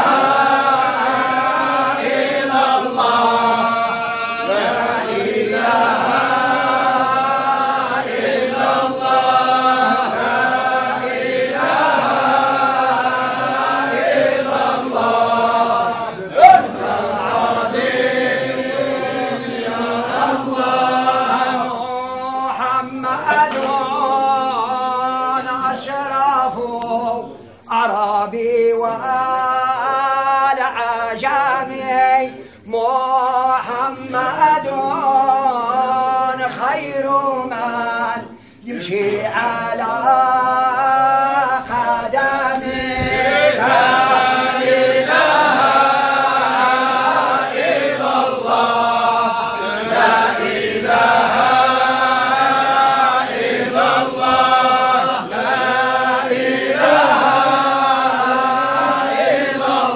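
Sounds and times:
men chanting a religious song: 0:00.0 - 0:59.9.

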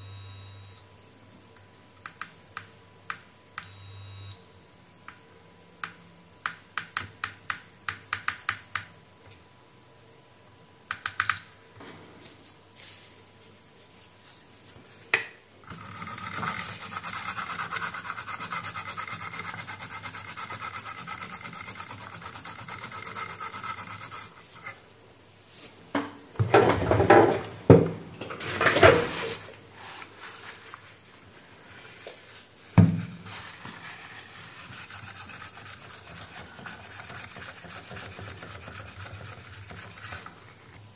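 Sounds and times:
scratchy rubbing: 0:15.7 - 0:24.8, 0:33.3 - 0:40.5
tissue rubbed over circuit board: 0:15.8 - 0:24.7, 0:33.2 - 0:40.6.

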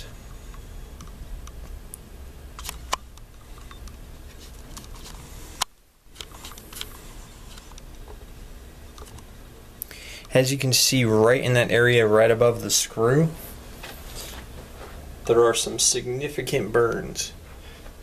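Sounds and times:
steady low hum: 0:00.0 - 0:18.0
camera handling clicks and rubs: 0:02.6 - 0:07.9.

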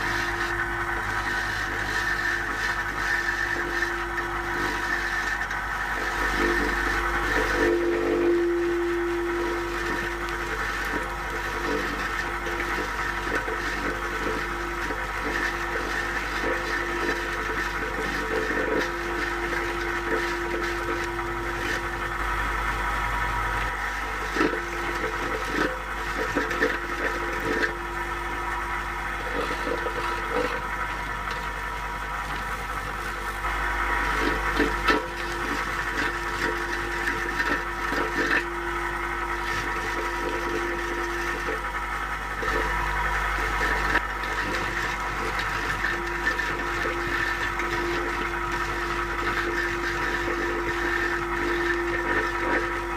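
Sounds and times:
brush scraping mortar off brick: 0:00.0 - 0:22.0, 0:24.0 - 0:27.9, 0:32.2 - 0:38.6, 0:43.4 - 0:52.9
motor hum: 0:00.0 - 0:52.9.

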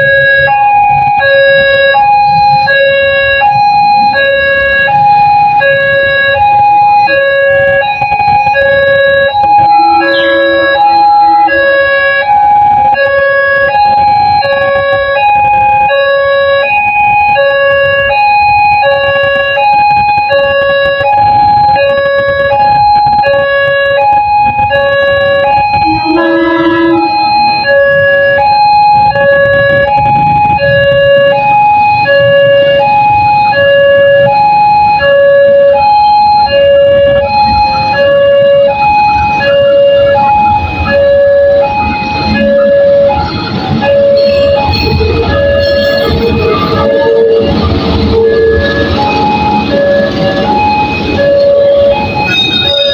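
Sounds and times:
road traffic rumble: 0:00.0 - 0:52.9
two-tone electronic warning chime: 0:00.0 - 0:52.9
vehicle horn: 0:09.8 - 0:11.8, 0:25.8 - 0:27.1, 0:43.8 - 0:49.3, 0:51.4 - 0:52.9.

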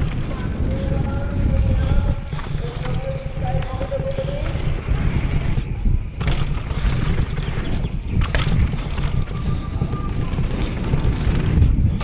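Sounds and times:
bike rattling over bumps: 0:00.0 - 0:12.0
bike tyres rolling on dirt: 0:00.0 - 0:12.0
wind buffeting microphone: 0:00.0 - 0:12.0.

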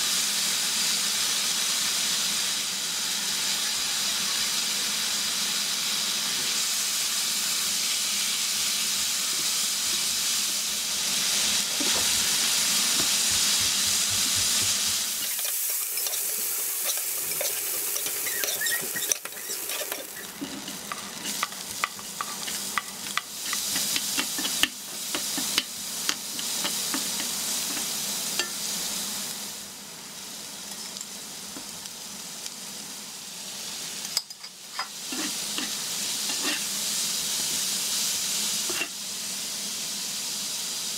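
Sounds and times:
meat sizzling in a frying pan: 0:00.0 - 0:40.9
utensil scraping a pan: 0:15.2 - 0:25.7, 0:34.8 - 0:36.7.

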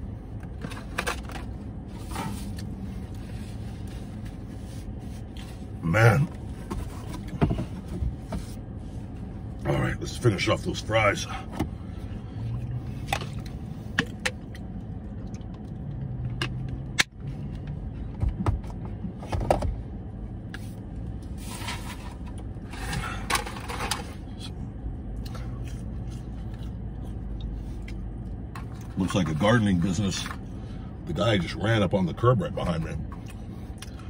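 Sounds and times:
car cabin hum: 0:00.0 - 0:34.0
chewing: 0:25.2 - 0:28.9.

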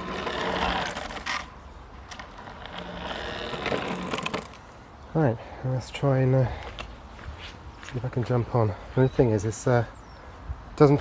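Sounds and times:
wheels rolling on asphalt: 0:00.0 - 0:04.9.

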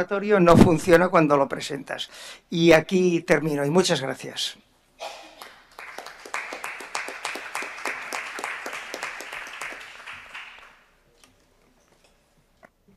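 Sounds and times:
audience applauding: 0:05.4 - 0:10.9.

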